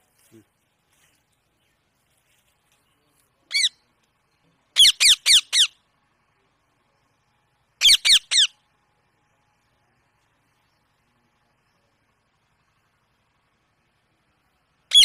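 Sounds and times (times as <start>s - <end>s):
parakeet shrill calls: 3.5s - 3.8s, 4.8s - 5.8s, 7.8s - 8.6s.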